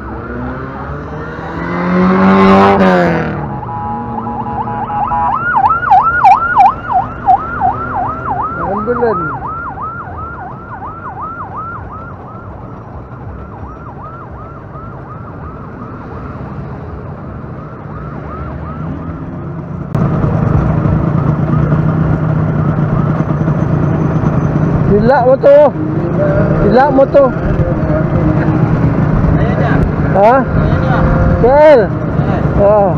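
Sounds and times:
ambulance siren yelp: 0:01.2 - 0:16.7, 0:17.3 - 0:19.4
steady rumble: 0:19.9 - 0:25.0.

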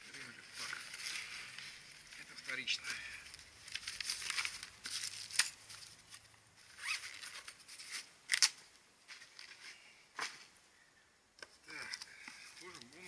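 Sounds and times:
paper sheet rustling: 0:00.2 - 0:06.2.

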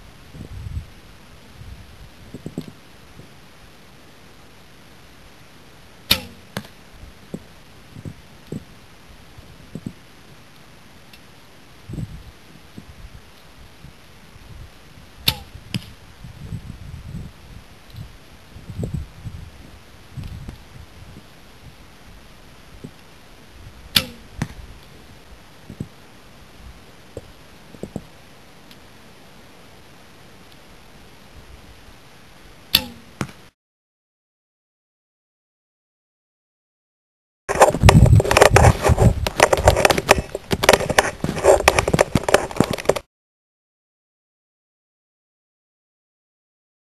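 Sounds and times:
arrow thudding into target: 0:06.1 - 0:06.7, 0:15.2 - 0:16.0, 0:23.9 - 0:24.6, 0:32.7 - 0:33.4
bowstring snap: 0:06.1 - 0:06.7, 0:15.2 - 0:15.9
footsteps crunching in snow: 0:37.5 - 0:43.0.

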